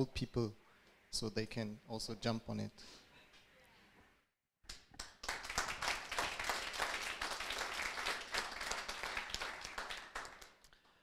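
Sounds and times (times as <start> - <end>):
audience applauding: 5.0 - 10.8.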